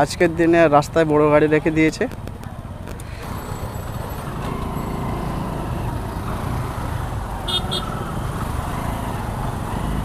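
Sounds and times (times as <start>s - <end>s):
motorcycle engine rumble: 2.2s - 10.0s.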